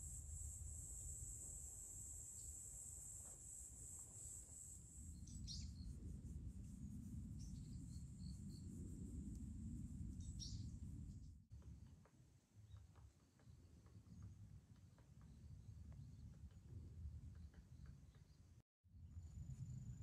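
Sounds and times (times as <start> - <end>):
high insect trill: 0.0 - 11.2.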